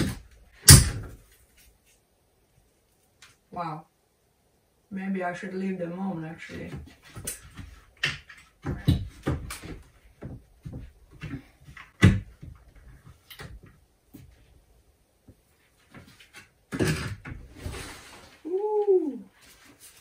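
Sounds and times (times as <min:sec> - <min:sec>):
plastic sheeting crinkling: 0:17.6 - 0:20.0.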